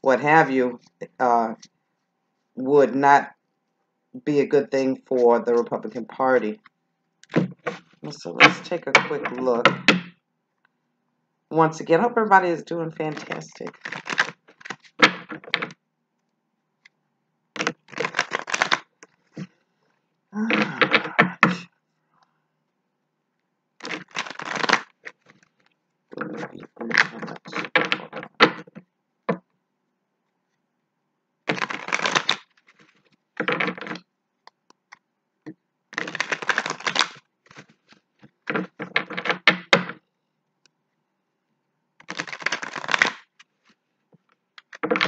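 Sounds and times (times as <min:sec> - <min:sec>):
cards being shuffled: 0:07.2 - 0:10.0, 0:13.0 - 0:15.8, 0:17.6 - 0:19.5, 0:23.8 - 0:28.8, 0:31.5 - 0:34.0, 0:35.9 - 0:40.0, 0:42.0 - 0:43.8, 0:44.6 - 0:45.0.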